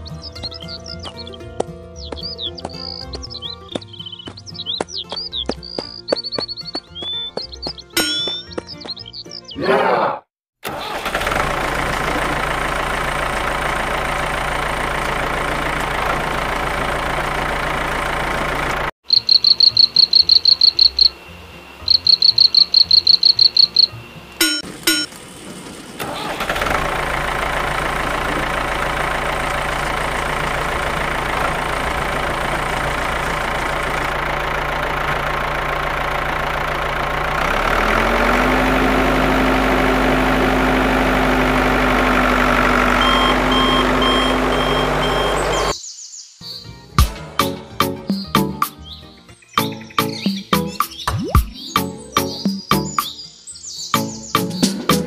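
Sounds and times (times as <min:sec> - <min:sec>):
tractor engine running: 0:00.0 - 0:09.6, 0:10.6 - 0:45.8
rapid high-pitched beeping: 0:19.1 - 0:25.1.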